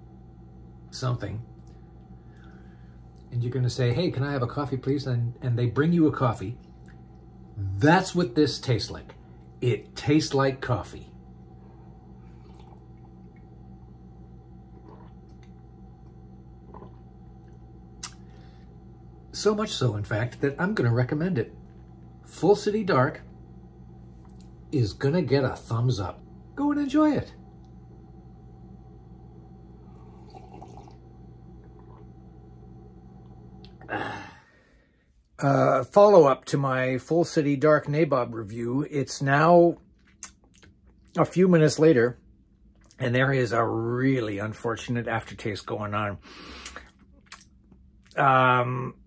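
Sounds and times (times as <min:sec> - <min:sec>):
low room hum: 0:00.0 - 0:49.0
person sipping coffee: 0:11.8 - 0:13.5, 0:14.4 - 0:18.9, 0:29.5 - 0:34.3, 0:46.4 - 0:48.2
man slurping coffee: 0:12.2 - 0:13.1, 0:14.6 - 0:15.6, 0:16.5 - 0:18.5, 0:29.8 - 0:32.2.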